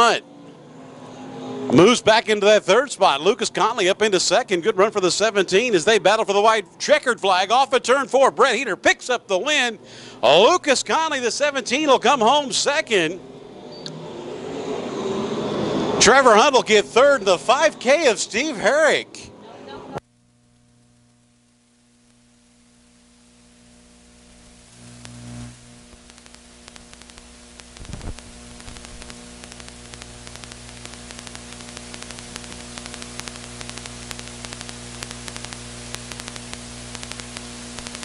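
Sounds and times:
electrical hum with static hiss: 0:16.5 - 0:38.0
fine crackling: 0:20.1 - 0:38.0.

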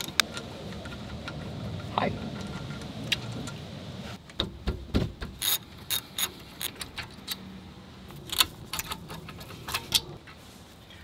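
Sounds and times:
ratchet wrench clicking: 0:05.4 - 0:07.4.

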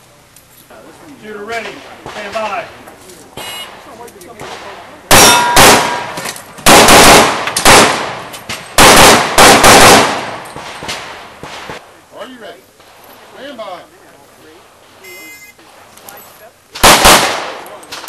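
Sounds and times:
pistol shots echoing: 0:04.4 - 0:11.8, 0:16.8 - 0:18.0
steel target ringing: 0:05.1 - 0:06.2.

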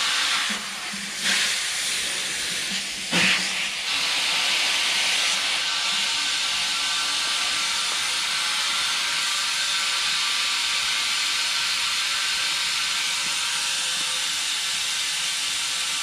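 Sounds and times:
compressed air hissing: 0:00.0 - 0:05.7.

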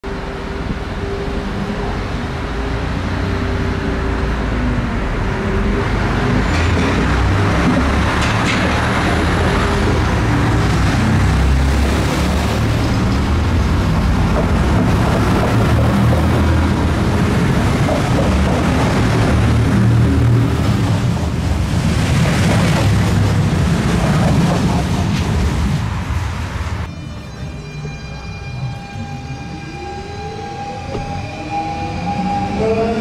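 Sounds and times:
diesel engine drone: 0:00.0 - 0:22.0
train wheels rumbling on rails: 0:00.2 - 0:26.9.

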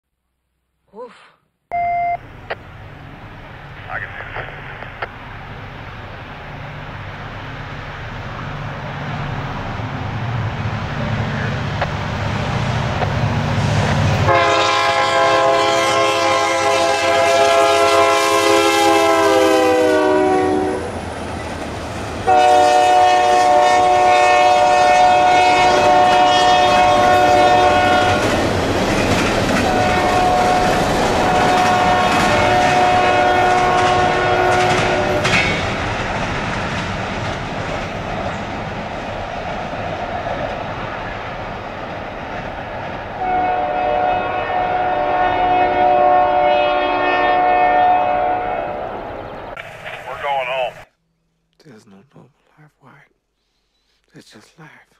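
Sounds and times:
locomotive engine rumble: 0:02.2 - 0:14.6
air horn chord: 0:14.3 - 0:20.9, 0:22.3 - 0:28.2, 0:43.2 - 0:48.7
steel wheels clattering on rails: 0:33.6 - 0:41.0.

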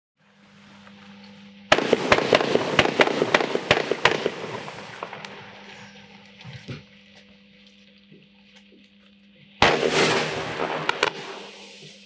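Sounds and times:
firework launch shots: 0:01.7 - 0:05.5, 0:09.6 - 0:12.0
hiss of burning fireworks: 0:01.7 - 0:06.8, 0:09.6 - 0:12.0.

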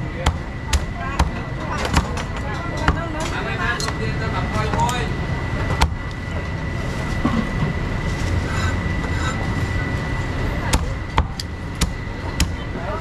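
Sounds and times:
high-pitched whine: 0:03.4 - 0:13.0.

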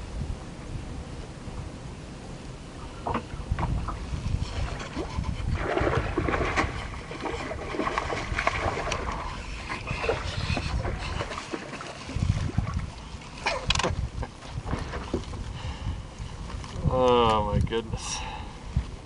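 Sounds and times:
wind rumbling on microphone: 0:00.0 - 0:19.0
fish splashing and thrashing: 0:03.2 - 0:15.7.

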